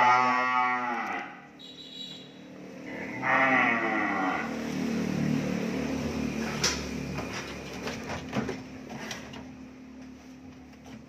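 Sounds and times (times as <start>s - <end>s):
cattle lowing: 2.8s - 4.6s.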